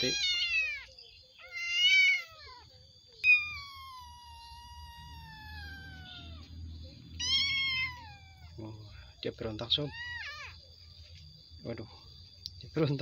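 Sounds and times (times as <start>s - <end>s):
kitten meowing: 0.0s - 8.6s, 9.8s - 10.6s.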